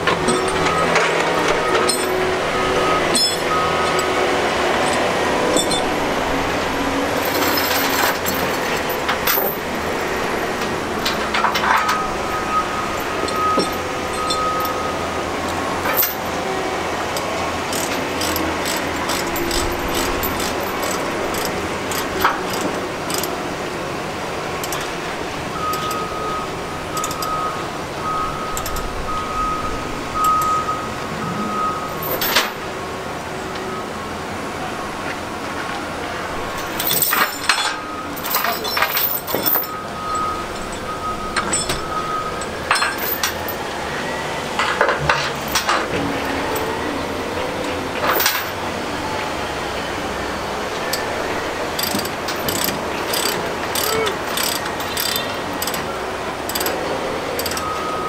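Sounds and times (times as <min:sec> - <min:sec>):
clicks and clanks: 0:00.0 - 0:02.3, 0:03.0 - 0:04.2, 0:04.8 - 0:05.9, 0:07.2 - 0:14.8, 0:15.4 - 0:16.4, 0:17.2 - 0:23.4, 0:24.6 - 0:25.0, 0:25.6 - 0:26.1, 0:27.0 - 0:27.4, 0:28.5 - 0:29.0, 0:32.0 - 0:32.6, 0:36.6 - 0:43.6, 0:44.6 - 0:46.7, 0:48.0 - 0:48.6, 0:51.7 - 0:55.9, 0:56.5 - 0:56.8, 0:57.4 - 0:57.8
heavy machinery running: 0:00.0 - 0:58.0
reversing alarm beeping: 0:00.2 - 0:23.5, 0:24.6 - 0:32.7, 0:37.1 - 0:44.8, 0:49.3 - 0:58.0.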